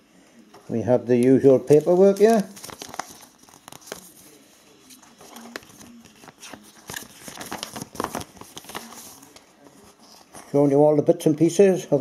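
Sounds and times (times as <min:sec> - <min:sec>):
paper rustling and crinkling: 0:00.6 - 0:10.7.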